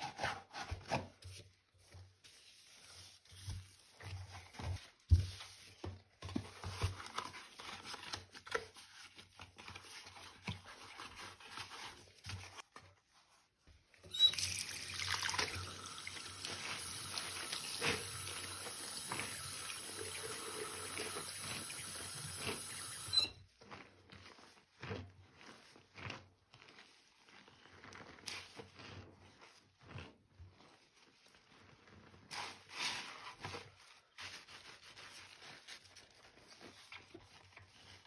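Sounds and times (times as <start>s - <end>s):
hands scrubbing paste: 0.0s - 5.8s, 15.3s - 38.0s
faucet running into sink: 14.1s - 23.3s.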